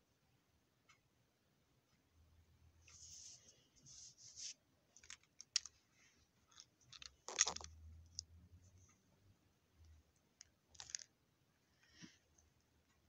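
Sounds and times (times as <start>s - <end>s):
small plastic clicks and handling: 4.9s - 5.8s, 6.4s - 8.3s, 9.8s - 11.1s.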